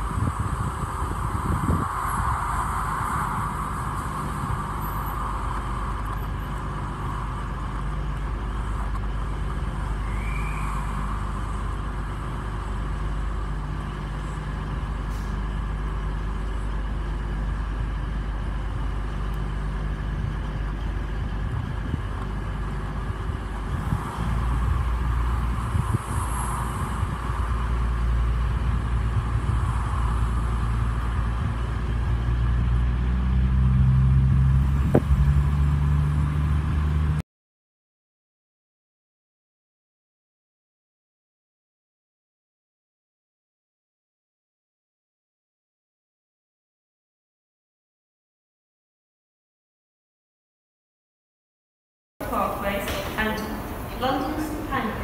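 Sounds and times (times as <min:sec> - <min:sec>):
diesel locomotive engines droning: 0:00.0 - 0:37.2, 0:52.2 - 0:55.0.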